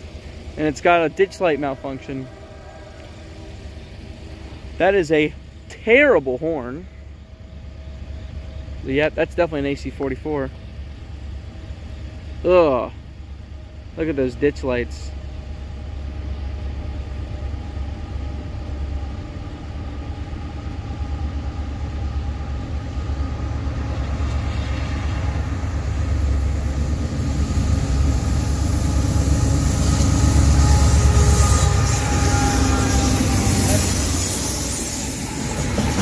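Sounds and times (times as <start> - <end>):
freight train engine rumble: 0.0 - 36.0.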